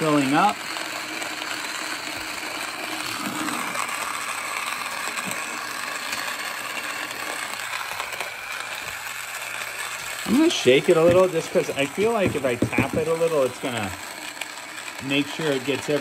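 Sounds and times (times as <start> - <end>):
electric coffee grinder grinding beans: 0.0 - 16.0.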